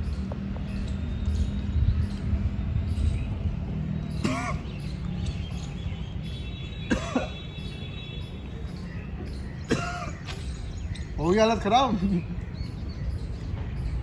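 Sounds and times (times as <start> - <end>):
man coughing: 4.2 - 4.7, 6.9 - 7.4, 9.7 - 10.2.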